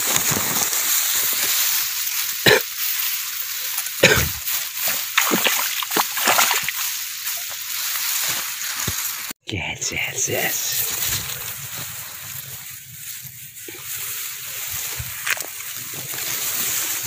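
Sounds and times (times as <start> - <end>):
fish thrashing and splashing water: 0.7 - 8.7.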